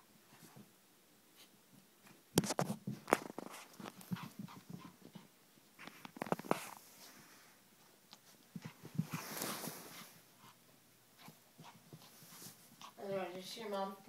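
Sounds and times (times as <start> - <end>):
dog tussling with plush toy: 2.4 - 6.8, 8.2 - 13.3.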